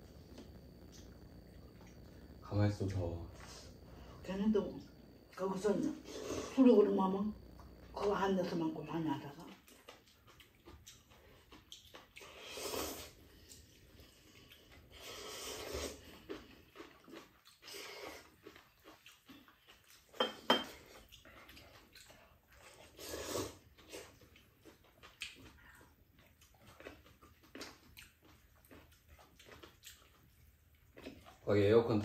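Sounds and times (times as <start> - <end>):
chewing: 9.3 - 32.0.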